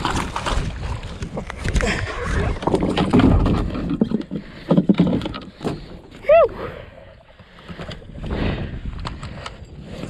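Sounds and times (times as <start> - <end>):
gear handled on kayak: 0.0 - 6.5.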